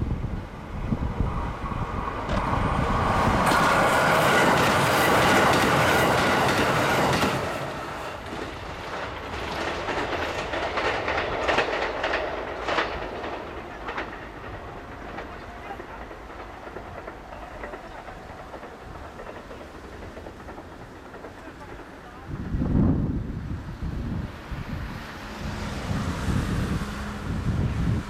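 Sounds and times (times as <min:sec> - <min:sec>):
diesel train passing: 0:00.0 - 0:28.0
wheels clacking over rail joints: 0:01.5 - 0:22.9.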